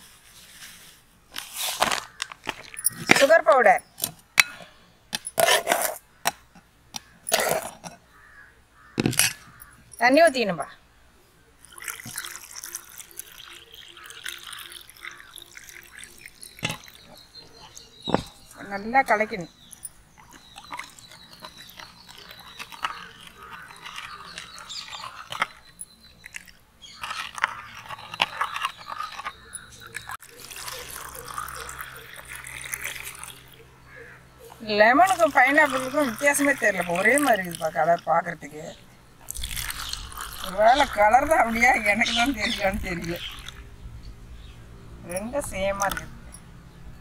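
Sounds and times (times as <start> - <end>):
gritty scrapes of sugar: 0.0 - 3.3, 5.3 - 6.0, 19.8 - 33.6, 39.2 - 43.6
liquid swishing: 11.6 - 17.1, 20.2 - 33.6, 39.3 - 43.7.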